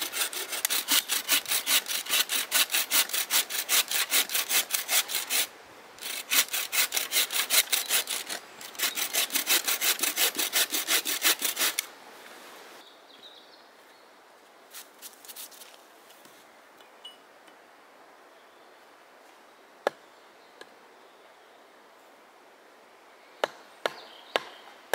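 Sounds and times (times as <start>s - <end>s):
frame saw cutting wood: 0.0s - 11.9s.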